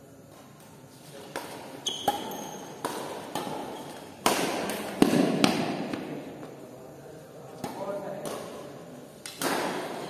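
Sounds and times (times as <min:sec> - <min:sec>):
sneakers squeaking on court floor: 0:01.3 - 0:04.2
racket hitting shuttlecock: 0:01.3 - 0:06.5, 0:07.6 - 0:10.0.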